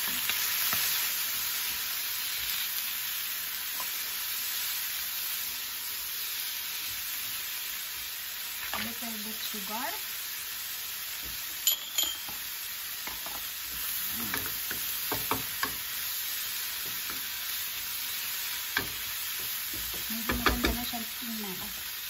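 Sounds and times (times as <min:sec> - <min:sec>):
food sizzling in a frying pan: 0:00.0 - 0:22.0
sharp ringing clinks: 0:11.6 - 0:12.4.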